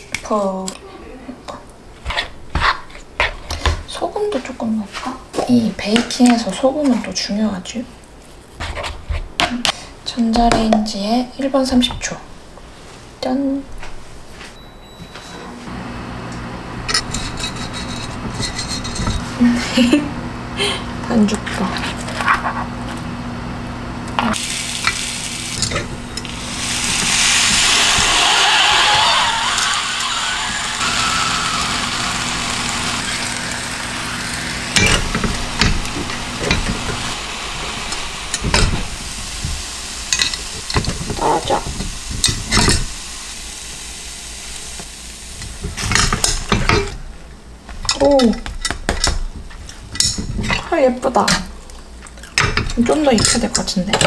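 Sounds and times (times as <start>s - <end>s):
steady hum: 15.5s - 45.5s
batter sizzling in a pan: 24.3s - 46.9s.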